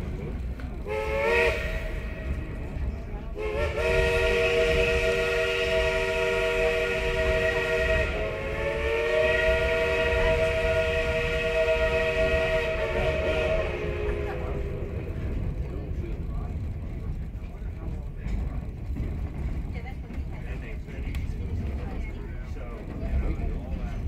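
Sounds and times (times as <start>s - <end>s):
train rumbling: 0.0s - 24.0s
steam locomotive whistle: 0.9s - 2.5s, 3.4s - 15.0s.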